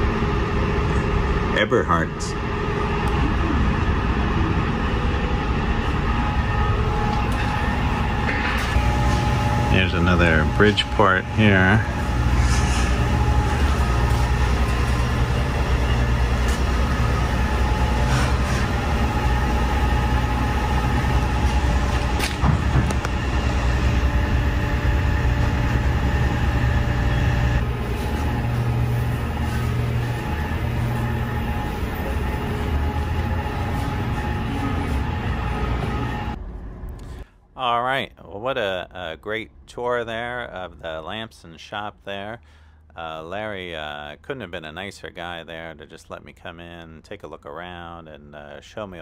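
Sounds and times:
machinery hum: 0.0s - 49.0s.

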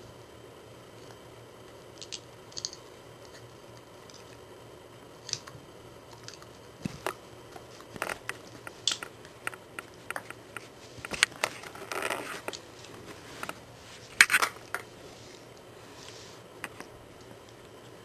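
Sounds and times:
plastic scraping: 6.8s - 14.8s.

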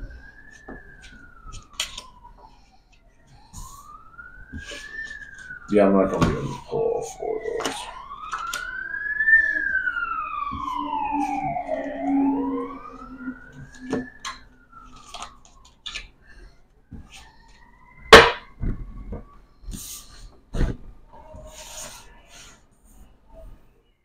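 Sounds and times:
emergency siren wailing: 0.0s - 22.3s.

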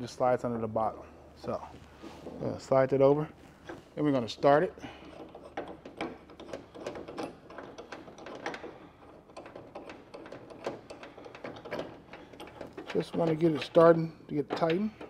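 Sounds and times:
small clicks and scrapes of metal parts: 4.8s - 15.0s.

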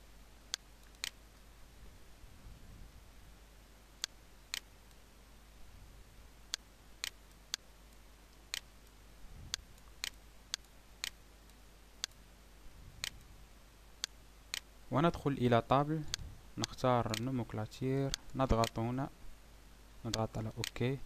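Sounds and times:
faint low hum: 0.0s - 21.0s
mouse buttons clicking: 0.5s - 1.2s, 6.5s - 7.6s.

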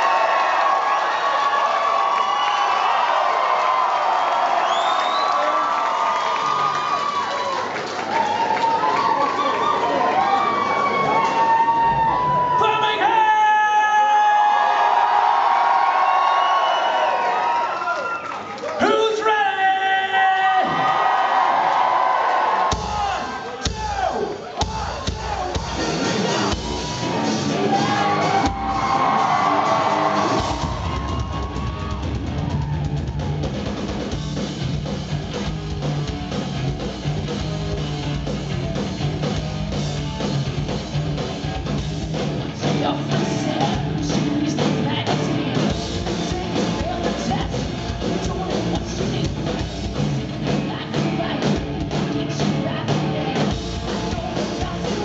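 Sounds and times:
drum kit: 22.6s - 55.0s
distorted electric guitars: 24.6s - 55.0s
woman singing: 42.7s - 45.4s, 46.0s - 49.6s, 50.4s - 55.0s.

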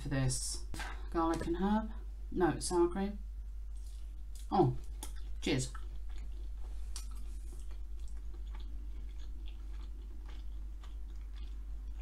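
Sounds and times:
low electrical hum: 0.0s - 12.0s
person chewing food: 3.7s - 12.0s.

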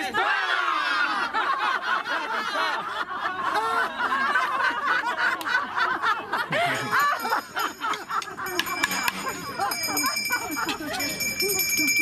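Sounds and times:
group laughing and chattering: 0.0s - 12.0s
bright jingling: 7.0s - 12.0s.

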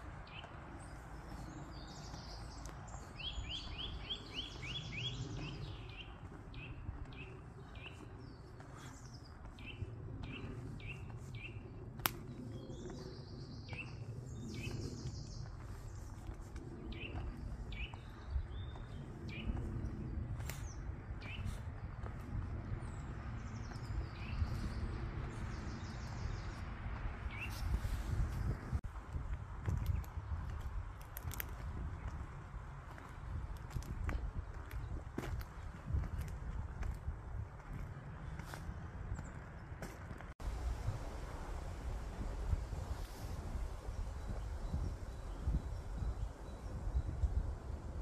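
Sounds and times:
songbirds chirping and trilling: 0.0s - 48.0s
steady low rumble: 0.0s - 48.0s.

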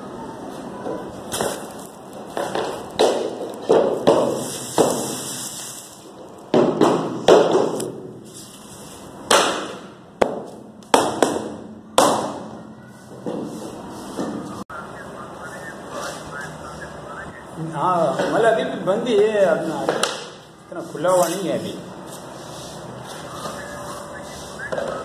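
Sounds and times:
rubber mallet knocking on wood: 6.5s - 8.0s.

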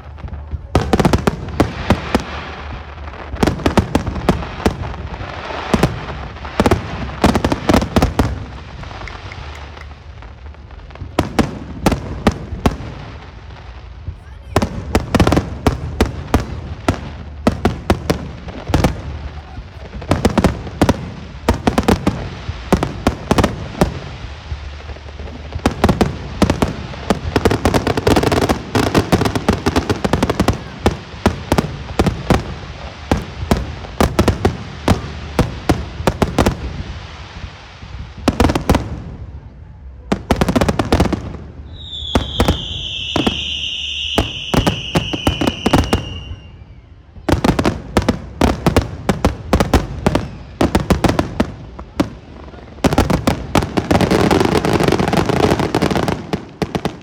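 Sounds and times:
fireworks booming and crackling: 0.0s - 57.0s
long high firework whistle: 41.6s - 47.8s.

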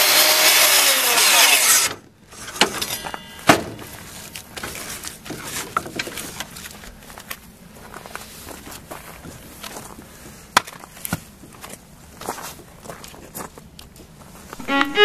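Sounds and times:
table saw cutting log: 0.0s - 4.0s.

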